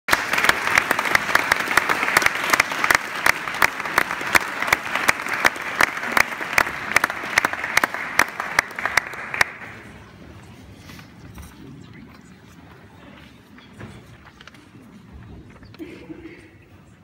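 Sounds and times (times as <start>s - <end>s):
audience applauding: 0.1s - 10.1s.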